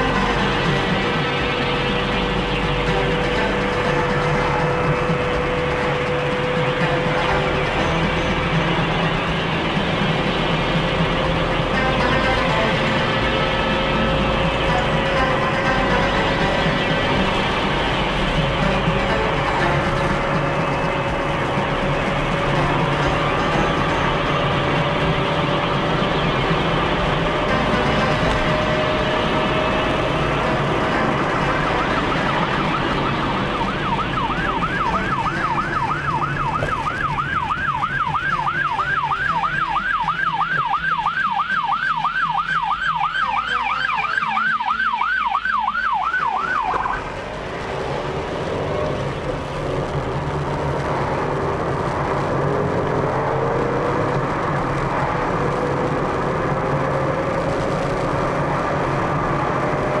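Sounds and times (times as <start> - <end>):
ambulance siren yelp: 0.0 - 47.6
car road noise from inside cabin: 0.0 - 60.0.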